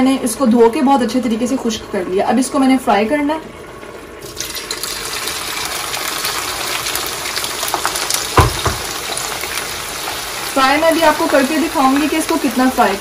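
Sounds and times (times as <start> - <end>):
vegetables sizzling in hot oil: 4.2 - 13.0
low thump: 8.4 - 8.9.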